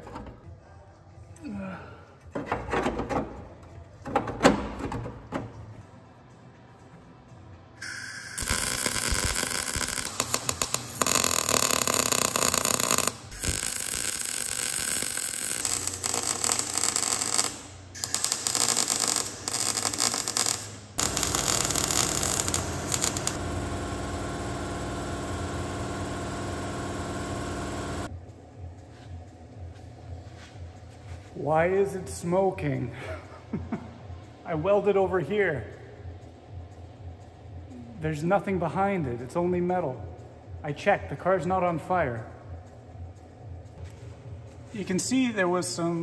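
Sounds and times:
welder arc crackling: 7.8 - 28.1.

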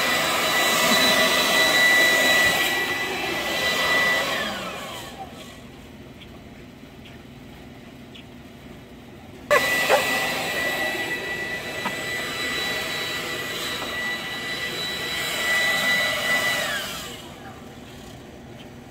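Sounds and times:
leaf blower motor whine: 0.0 - 5.8, 9.5 - 18.5.

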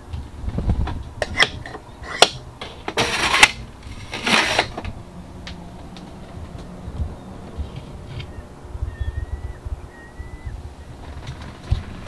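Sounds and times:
plastic drawer sliding rasps: 1.4 - 4.9.

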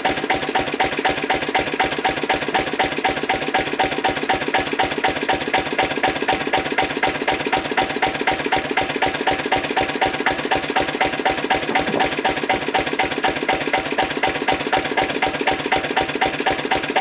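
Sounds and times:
diesel engine idling: 10.1 - 15.4.

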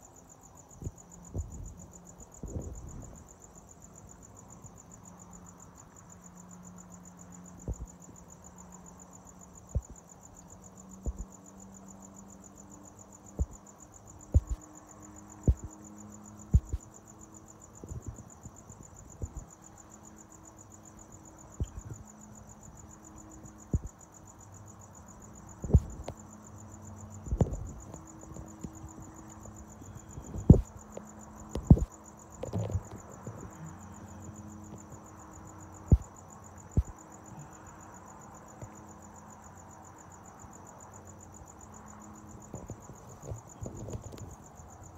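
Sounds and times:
crickets chirping: 0.0 - 44.9
sharp low thumps: 14.4 - 14.6, 16.5 - 16.8.

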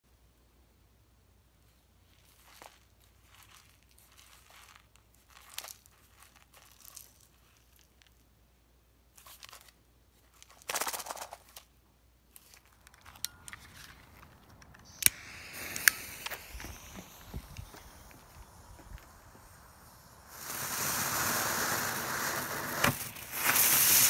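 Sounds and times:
paper rustling and scraping: 12.3 - 15.0, 21.6 - 24.0
lighter click: 14.8 - 18.0.

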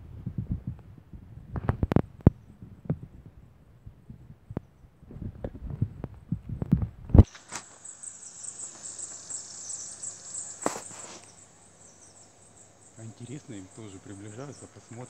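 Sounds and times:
insects buzzing in trees: 7.2 - 15.0.

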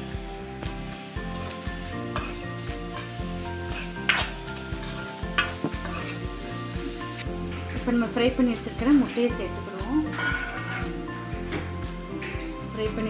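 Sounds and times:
vegetables sizzling in oil: 0.0 - 11.8
spatula scraping wok: 0.7 - 7.8, 10.0 - 11.1.

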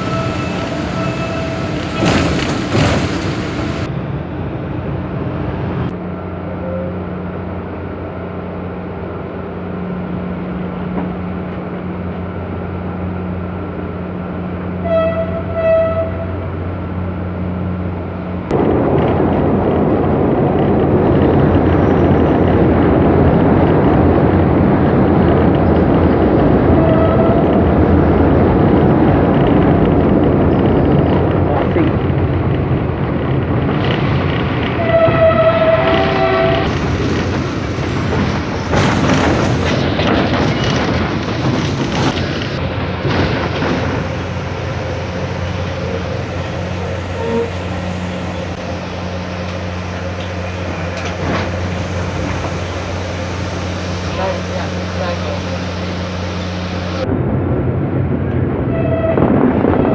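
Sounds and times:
train horn: 0.0 - 2.1, 14.8 - 16.4, 26.7 - 27.6, 34.8 - 36.7, 47.1 - 47.7, 58.7 - 59.9
train running rumble: 0.0 - 59.9.

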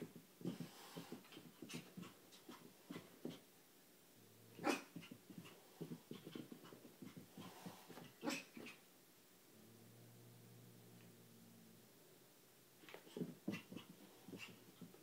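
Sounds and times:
dog paws thumping on carpet: 0.0 - 3.5, 4.9 - 8.7, 12.8 - 15.0
dog panting: 0.4 - 3.5, 4.9 - 8.8, 12.8 - 15.0.

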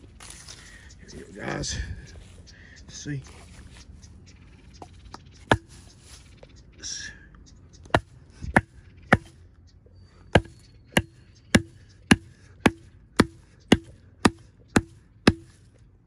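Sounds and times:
hatchet chopping branch: 5.5 - 5.8, 7.8 - 9.4, 10.3 - 15.7.

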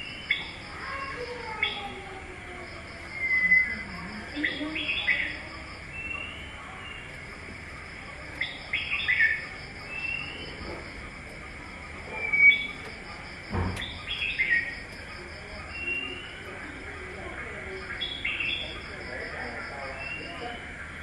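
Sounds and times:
birds chirping: 3.0 - 21.0
thump: 13.5 - 14.0.

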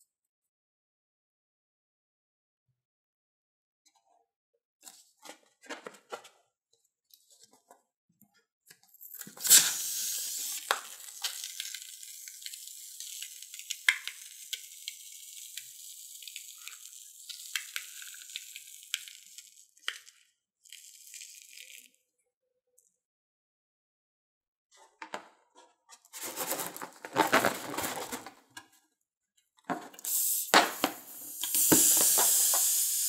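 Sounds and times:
foam spurting from balloon: 9.4 - 10.8, 30.4 - 33.0
foam hissing crackle with pops: 9.4 - 20.2, 30.0 - 33.0
rubbery handling sounds: 26.0 - 28.6.

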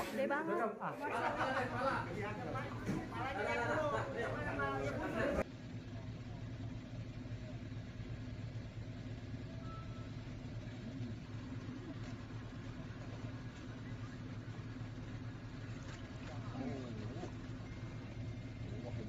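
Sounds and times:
faint voices: 0.0 - 7.5
low engine hum: 1.1 - 19.0.

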